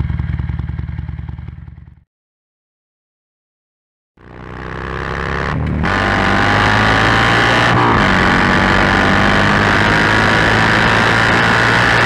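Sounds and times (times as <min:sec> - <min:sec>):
motorcycle engine accelerating: 0:00.0 - 0:02.0, 0:04.2 - 0:12.0
wind and road noise: 0:04.3 - 0:12.0.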